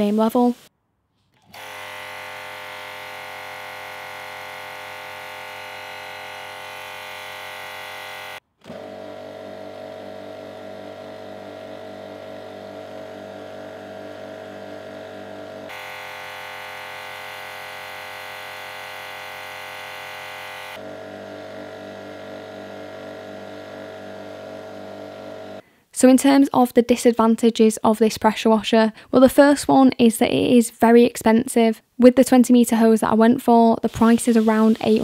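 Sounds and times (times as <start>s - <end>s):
high-pitched pressure washer running: 1.6s - 25.6s, 33.9s - 35.0s
low-pitched pressure washer running: 1.6s - 25.6s.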